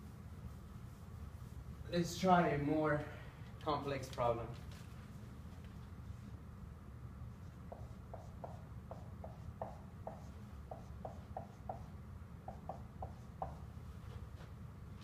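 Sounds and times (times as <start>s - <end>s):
marker squeaking on whiteboard: 7.4s - 11.9s.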